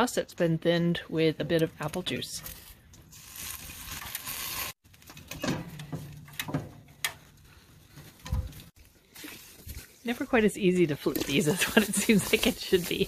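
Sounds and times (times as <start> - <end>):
chicken wings sizzling on grill: 3.1 - 4.7.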